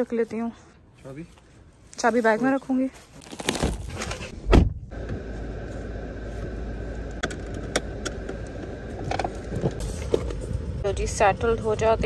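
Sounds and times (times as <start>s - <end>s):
car door shutting thud: 4.1s - 5.2s
car cabin hum: 4.1s - 12.0s.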